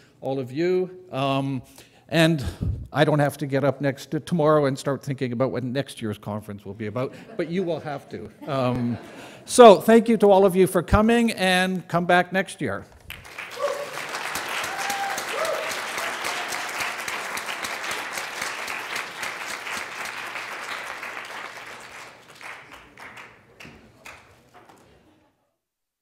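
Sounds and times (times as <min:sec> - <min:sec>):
audience applauding: 0:13.0 - 0:25.0.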